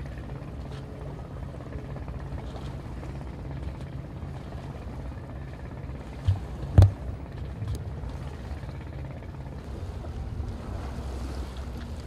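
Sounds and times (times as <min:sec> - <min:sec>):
boat engine rumbling: 0:00.0 - 0:12.0
sharp knocks: 0:06.3 - 0:07.0.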